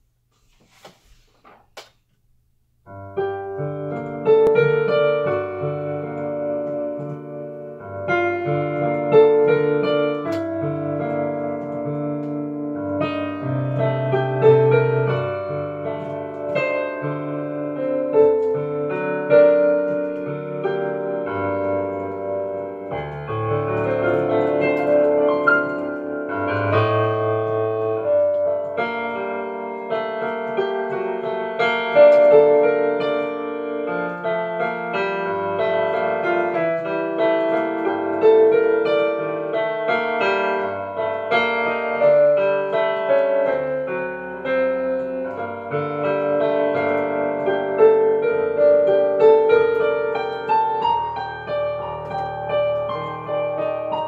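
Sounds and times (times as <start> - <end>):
solo piano: 2.8 - 54.0.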